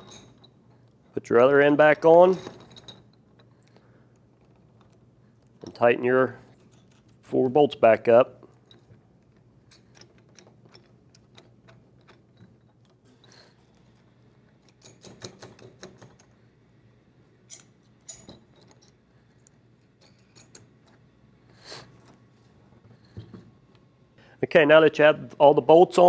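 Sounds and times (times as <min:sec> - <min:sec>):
metallic clicks of bolts and nuts: 0:00.0 - 0:05.9, 0:06.5 - 0:07.4, 0:08.5 - 0:16.4, 0:17.4 - 0:21.1.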